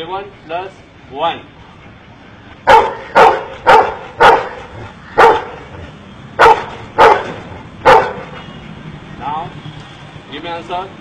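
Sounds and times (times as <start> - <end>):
dog barking: 2.7 - 5.8, 6.4 - 8.4.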